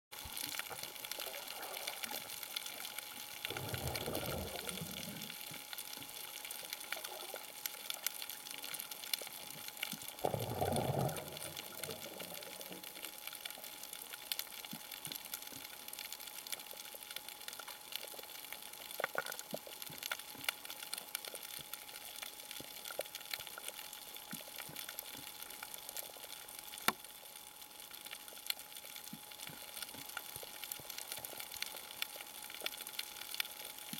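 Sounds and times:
steady underwater hiss: 0:00.2 - 0:33.9
diver exhaling bubbles: 0:03.5 - 0:05.4, 0:10.2 - 0:12.6.

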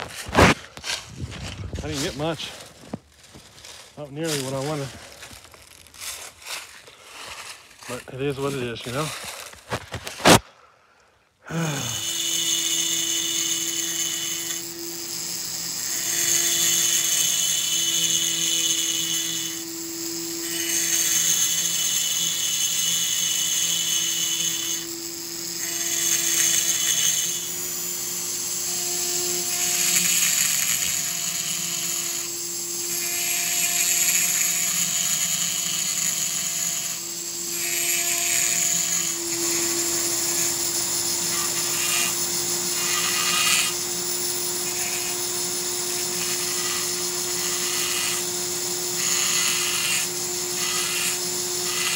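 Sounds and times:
rotary grinder whining: 0:11.5 - 0:51.9.

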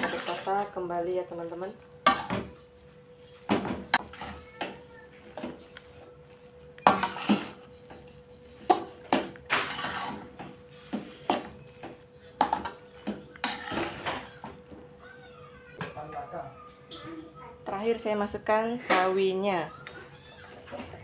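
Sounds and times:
metal spatula scraping a wok: 0:06.9 - 0:07.7, 0:09.5 - 0:10.4, 0:13.4 - 0:14.3.

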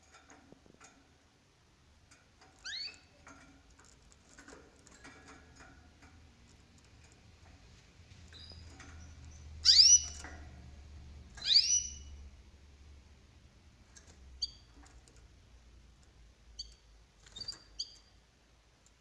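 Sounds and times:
birds scuffling on cage wire: 0:02.1 - 0:09.4.

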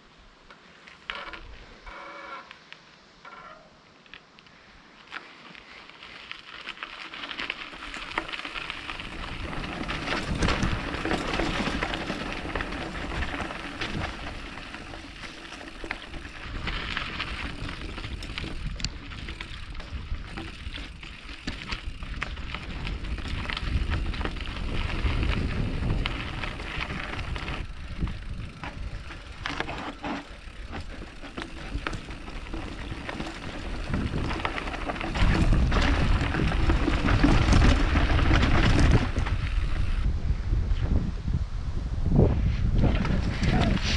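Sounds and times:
bike tyres crunching over dirt: 0:00.3 - 0:41.0, 0:42.2 - 0:43.9
bike rattling and knocking: 0:06.6 - 0:40.0.

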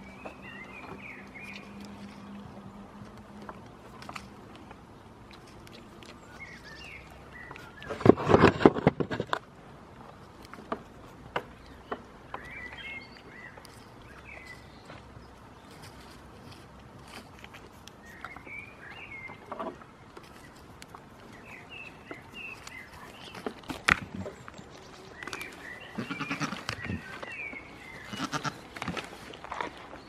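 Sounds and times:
goats bleating: 0:25.9 - 0:27.1, 0:28.0 - 0:28.6.

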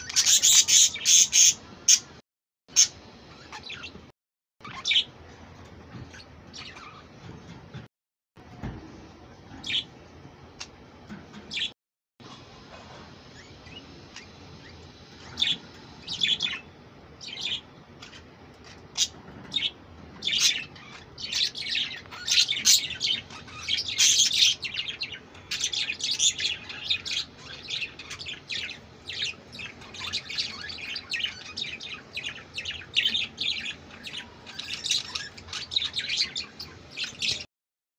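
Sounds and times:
budgerigars chirping: 0:00.0 - 0:02.1, 0:02.7 - 0:04.0, 0:15.2 - 0:37.4.

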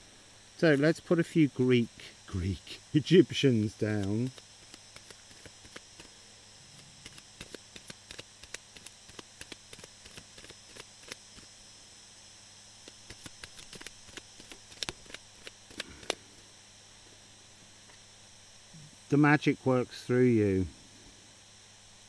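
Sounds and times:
cards being shuffled: 0:03.9 - 0:06.1, 0:07.0 - 0:11.2, 0:12.8 - 0:16.2.

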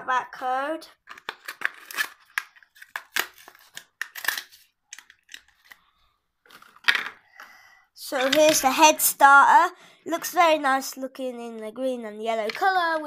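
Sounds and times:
plastic packaging crackling and tearing: 0:01.0 - 0:05.9.

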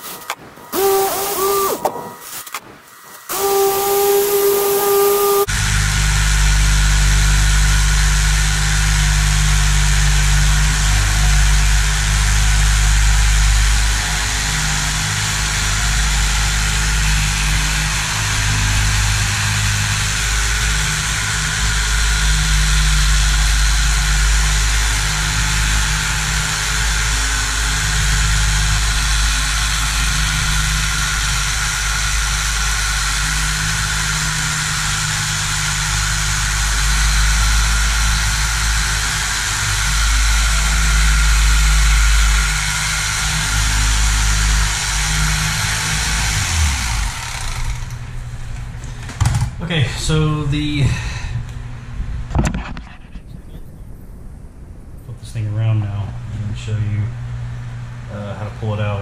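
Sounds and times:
electric knife cutting foam: 0:00.0 - 0:48.4.

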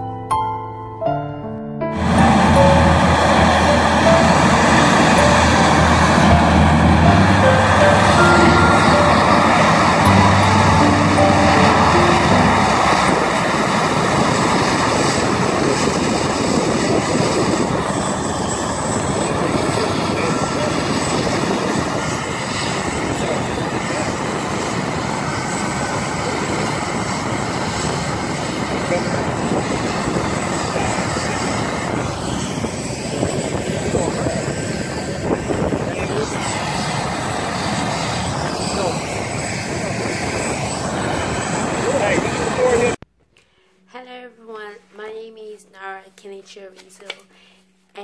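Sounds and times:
faint piano notes: 0:00.0 - 0:13.4
high whine: 0:01.5 - 0:15.0
heavy machinery roar: 0:01.9 - 0:15.6
hovercraft engines roaring: 0:01.9 - 0:43.0.

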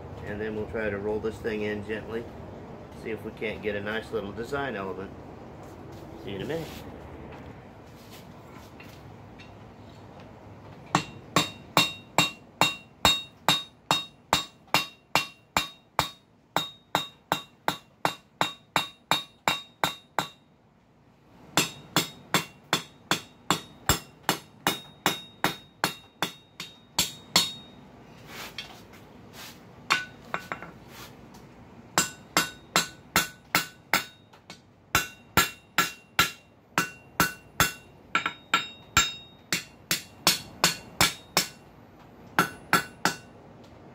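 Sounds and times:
hammer striking steel on anvil: 0:10.9 - 0:20.4, 0:21.6 - 0:27.8, 0:29.9 - 0:30.8, 0:32.0 - 0:41.7, 0:42.4 - 0:43.4.

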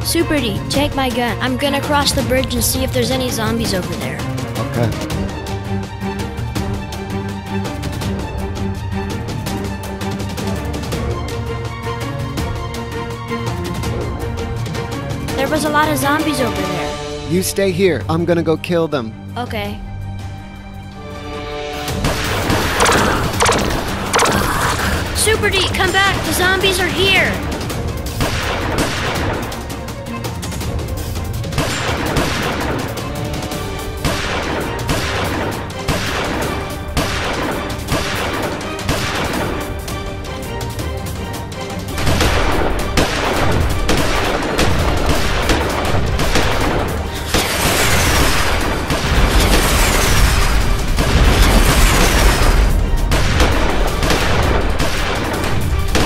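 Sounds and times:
action background music: 0:00.0 - 0:56.0
gunfire sound effects: 0:22.1 - 0:24.7
falling whistle and boom: 0:22.7 - 0:24.4.

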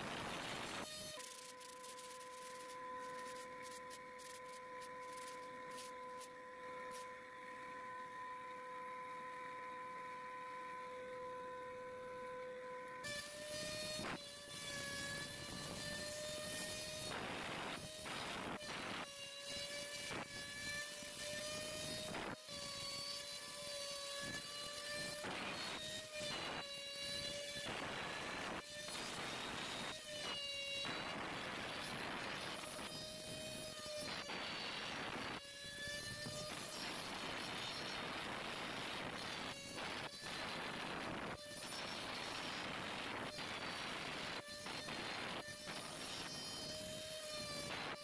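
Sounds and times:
router spindle high whine: 0:00.0 - 0:48.0
bit cutting board scraping: 0:00.3 - 0:07.2.

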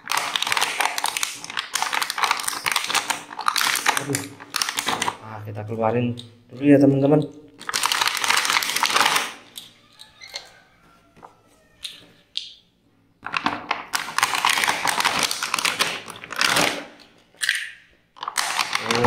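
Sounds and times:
plastic blister pack crinkling: 0:00.0 - 0:05.3, 0:07.1 - 0:10.5, 0:13.2 - 0:19.0.

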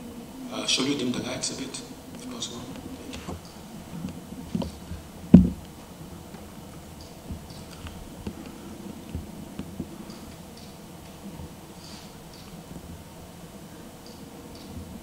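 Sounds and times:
faint clicks and taps: 0:02.1 - 0:11.6
loud thump: 0:05.3 - 0:05.7.

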